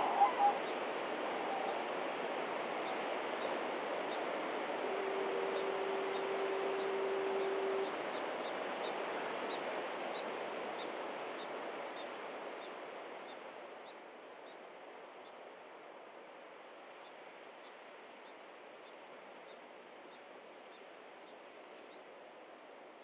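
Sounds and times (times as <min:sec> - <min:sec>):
faint steady hiss: 0:00.0 - 0:23.0.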